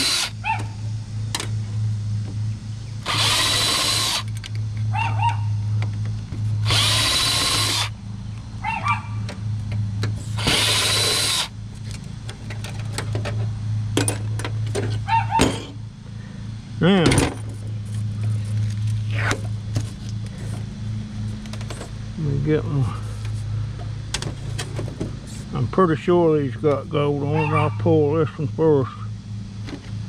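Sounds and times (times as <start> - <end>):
cordless drill spinning: 0.0 - 0.4, 3.0 - 4.4, 6.6 - 8.0, 10.3 - 11.5
low hum: 0.0 - 30.0.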